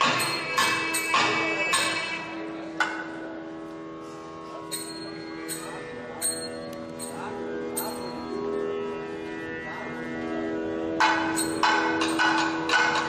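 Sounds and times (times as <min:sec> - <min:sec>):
sharp percussion strikes: 0:00.0 - 0:03.1, 0:04.7 - 0:08.5, 0:10.9 - 0:13.0
steady drone: 0:00.0 - 0:13.0
double-reed pipe melody: 0:03.4 - 0:12.8.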